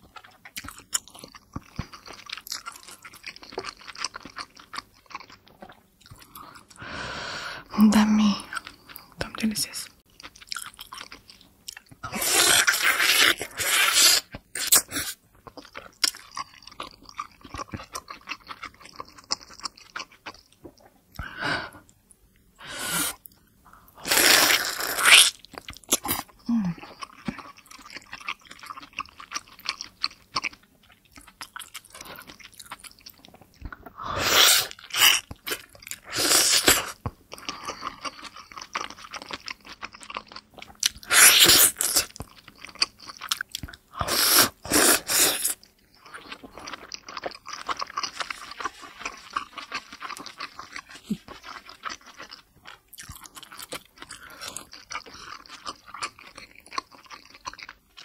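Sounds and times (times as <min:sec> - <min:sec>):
wet chewing and mouth smacking: 0:00.0 - 0:06.8, 0:10.0 - 0:22.2, 0:24.5 - 0:58.0.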